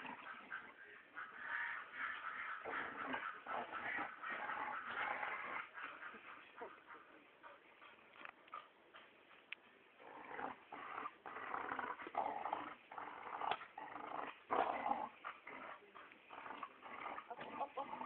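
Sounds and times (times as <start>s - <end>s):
small dog growling: 10.0s - 18.0s.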